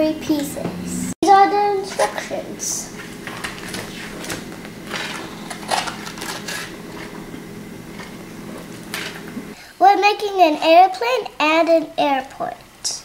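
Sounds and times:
steady low hum: 0.0 - 13.0
plastic bags crinkling: 4.8 - 7.2.

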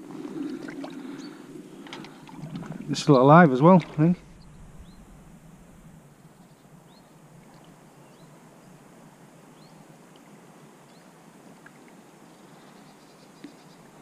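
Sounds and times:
high rising chirps: 4.1 - 6.0.

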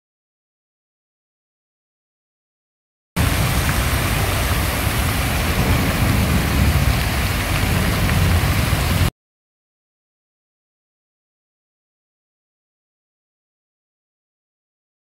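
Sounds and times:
fountain water splashing: 3.2 - 9.1.

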